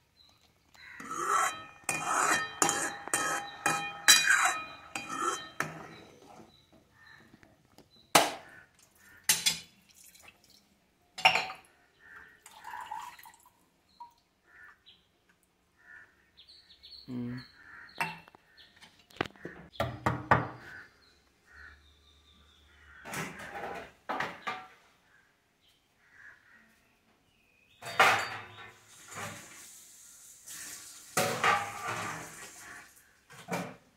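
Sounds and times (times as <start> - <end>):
steel dishes clattering: 1.0 - 6.2, 9.3 - 9.7, 27.8 - 29.6, 31.2 - 32.8
water dripping into steel cup: 12.4 - 14.2.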